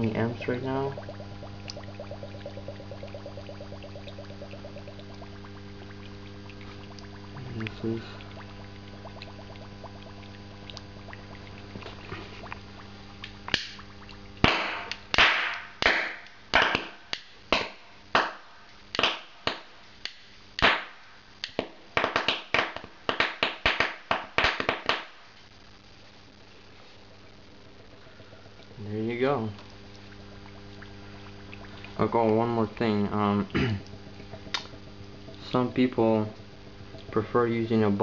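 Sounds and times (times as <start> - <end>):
gas bubbling through water: 0.0 - 16.5, 26.5 - 38.0
steady hum: 0.0 - 38.0.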